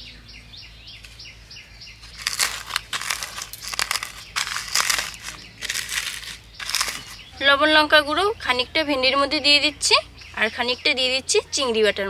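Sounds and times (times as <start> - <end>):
dried chillies crackling and crunching: 2.0 - 7.4.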